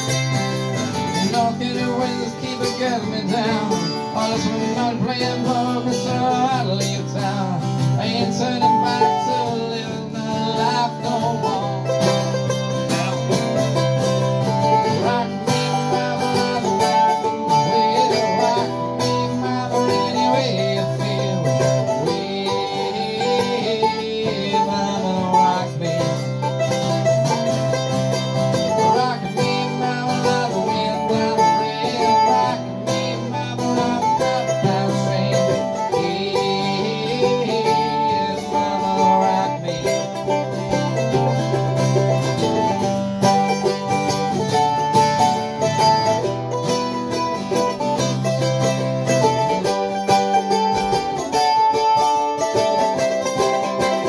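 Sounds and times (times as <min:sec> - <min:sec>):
acoustic folk guitar duo: 0:00.0 - 0:54.0.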